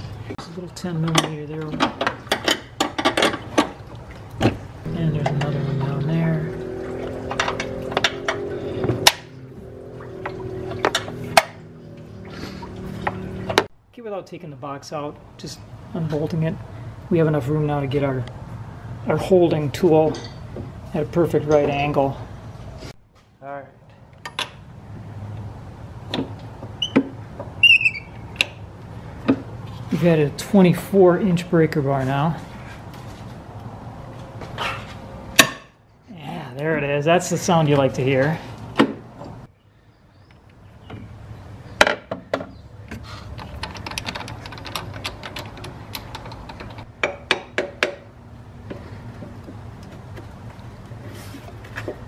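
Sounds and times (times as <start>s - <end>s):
steady low hum: 4.6s - 13.7s
short high squeak: 27.6s - 28.2s
metal tool clicks and clanks: 43.3s - 48.0s.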